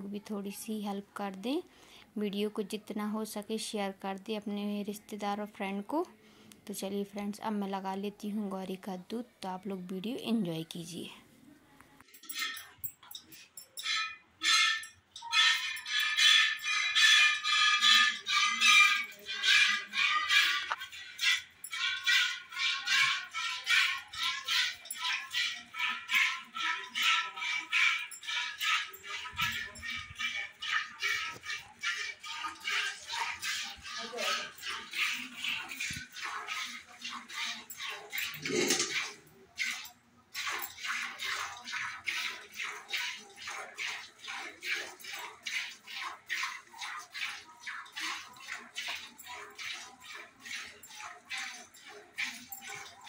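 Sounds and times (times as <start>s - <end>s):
milk squirting into steel pail: 12.1s - 53.0s.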